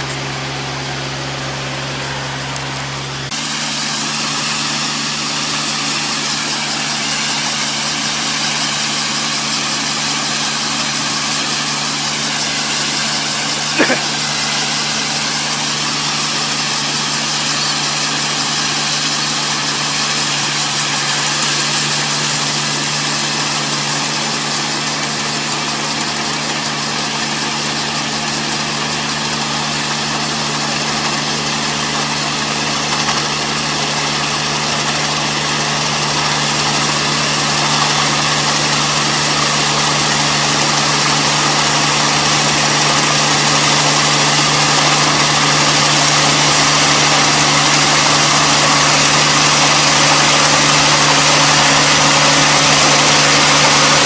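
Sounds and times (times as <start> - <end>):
farm machinery engine droning: 0.0 - 54.0.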